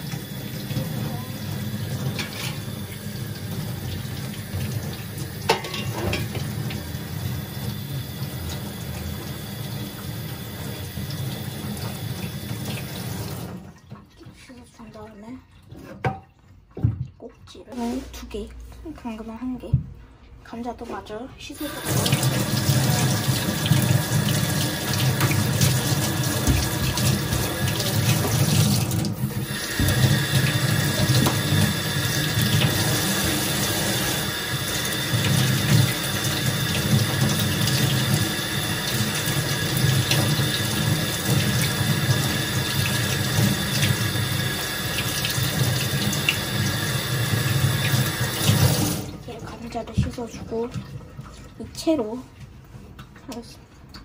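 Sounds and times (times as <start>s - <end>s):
tap running into a sink: 0.0s - 6.9s, 21.8s - 49.1s.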